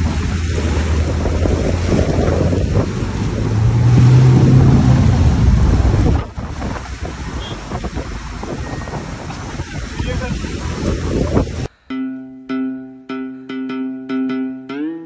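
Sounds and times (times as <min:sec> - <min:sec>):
vehicle engine under load: 0:00.0 - 0:11.7
water rushing and splashing: 0:00.0 - 0:11.7.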